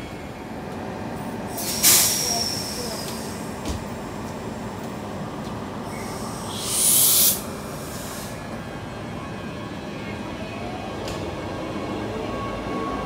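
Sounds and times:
train rumble: 0.0 - 13.0
air hissing: 1.5 - 3.4, 5.8 - 8.4.

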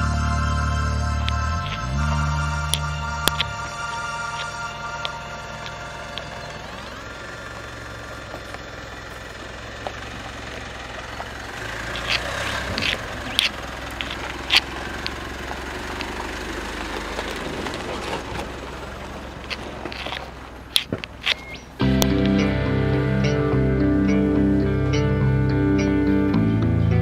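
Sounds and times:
diesel engine running low: 0.0 - 27.0
tyres crunching on stones: 1.2 - 22.4.

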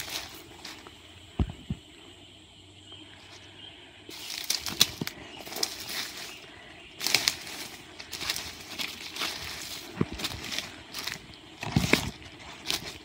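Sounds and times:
brushing through undergrowth: 0.0 - 0.9, 4.1 - 13.0
footsteps crunching through dry leaves: 0.0 - 1.0, 4.1 - 13.0.

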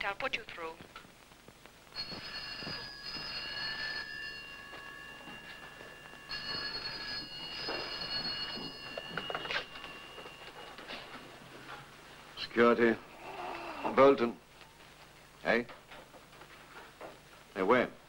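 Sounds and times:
desk telephone ringing: 2.0 - 11.8.

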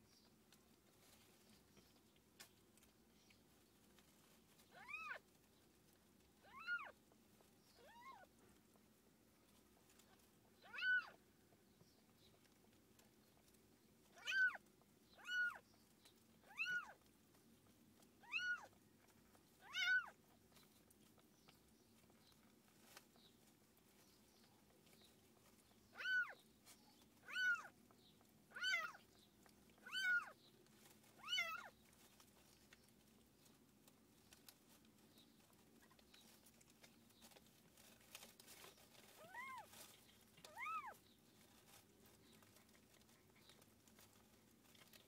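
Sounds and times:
kitten mewing: 10.6 - 11.2, 14.2 - 14.6.

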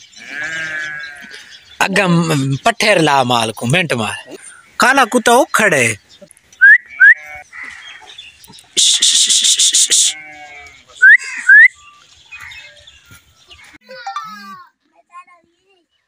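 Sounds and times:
short rising whistle notes: 11.0 - 11.7.

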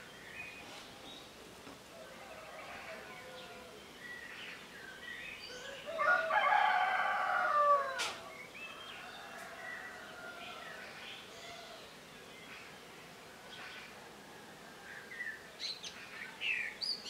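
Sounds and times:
songbirds chirping and singing: 0.0 - 17.0
rooster crowing: 1.9 - 3.8, 5.7 - 11.0.

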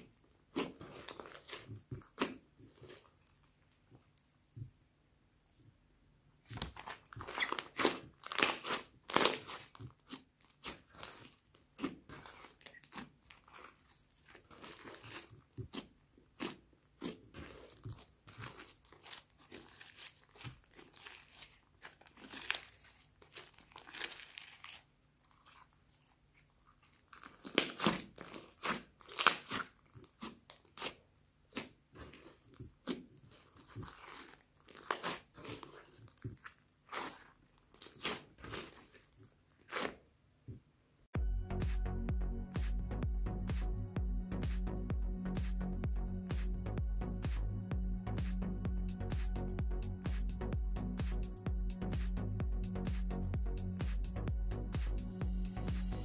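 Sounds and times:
hands squishing slime: 0.0 - 4.2, 6.4 - 40.0.

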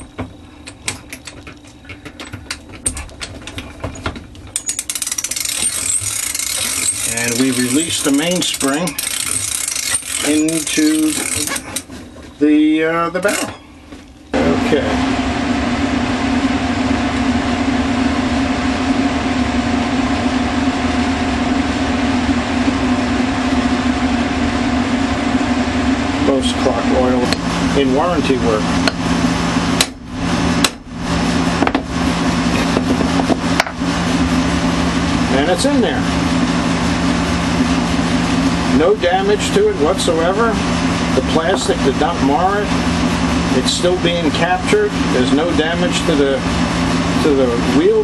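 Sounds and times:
loud mechanical hum: 0.0 - 48.0
ratchet clicking: 4.5 - 11.9.

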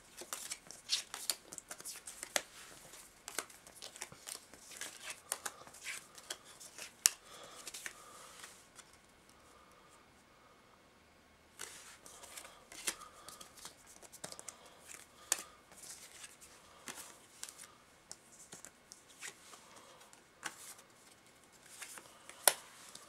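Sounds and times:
cards rustling and sliding: 0.1 - 9.1, 11.6 - 23.0
cards clacking together: 0.2 - 9.1, 11.6 - 19.4.

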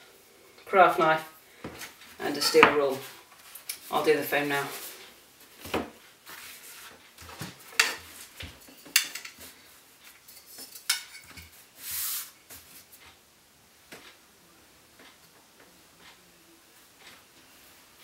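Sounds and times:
scraping rustle: 1.9 - 13.1.

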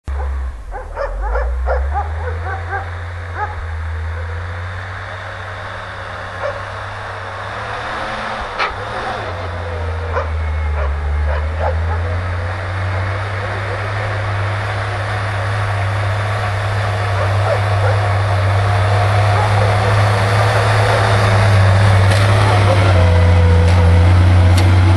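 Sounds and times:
truck engine running: 0.0 - 24.9
dog barking: 0.1 - 4.4, 6.4 - 6.8, 8.6 - 14.6, 16.8 - 21.2.

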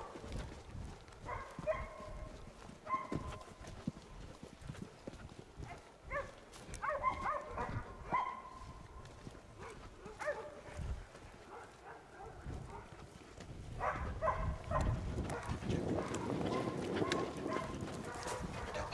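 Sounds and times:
hunting dogs baying: 0.0 - 3.6, 5.6 - 18.9
footsteps crunching on dirt: 0.0 - 18.9.

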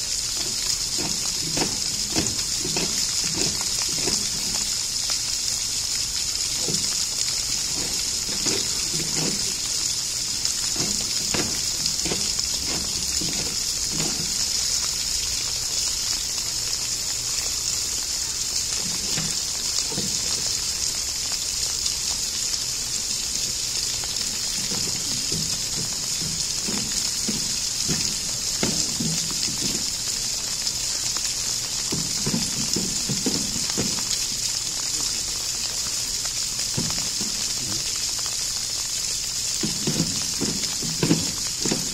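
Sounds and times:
flowing water: 0.0 - 41.9
knocks and scrapes on plastic: 0.4 - 4.6, 6.6 - 14.5, 24.5 - 29.9, 39.6 - 41.9.

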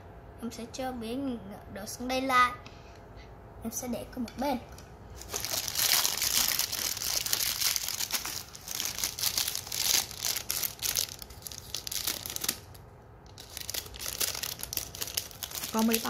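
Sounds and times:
plastic foil wrapper crinkling: 5.1 - 16.0.

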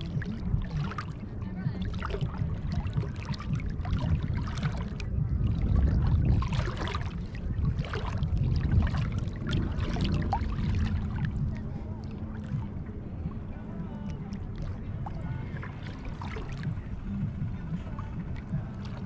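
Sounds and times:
low uneven rumble: 0.0 - 19.0
seawater splashing and lapping: 0.0 - 19.0.

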